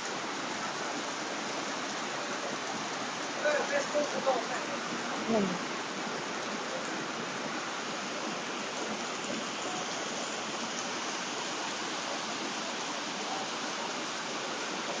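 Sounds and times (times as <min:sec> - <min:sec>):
heavy rain on paving: 0:00.0 - 0:15.0.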